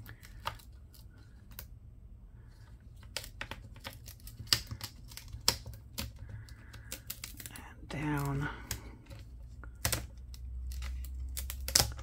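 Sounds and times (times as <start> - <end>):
adhesive crackling as bezel peeled: 2.9 - 12.0.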